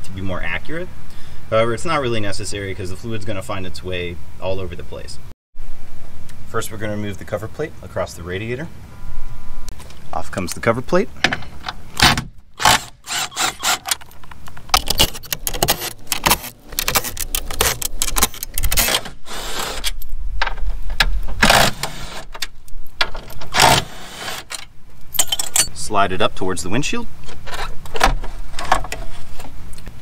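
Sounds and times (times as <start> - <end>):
cordless driver rattling bursts: 12.6 - 14.1, 21.4 - 22.2.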